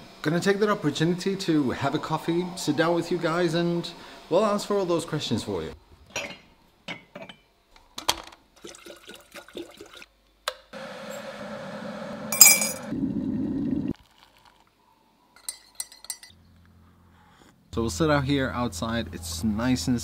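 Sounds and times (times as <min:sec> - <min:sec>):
ceramic mugs clinking: 0:06.1 - 0:07.5, 0:12.4 - 0:12.9, 0:15.4 - 0:16.4
electric kettle boiling: 0:10.8 - 0:14.6.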